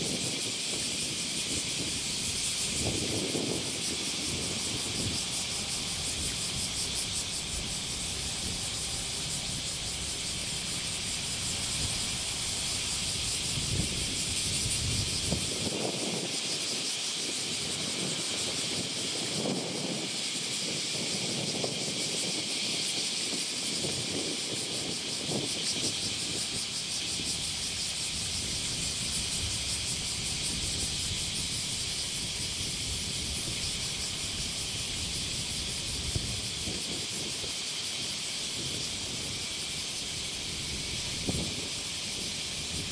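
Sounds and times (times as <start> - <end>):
cicada chorus buzzing: 0.0 - 42.9
high hiss with fluttering: 0.0 - 42.9
diesel railcar engines rumbling: 0.9 - 16.2, 26.3 - 42.9
diesel railcar rumbling: 4.1 - 15.5.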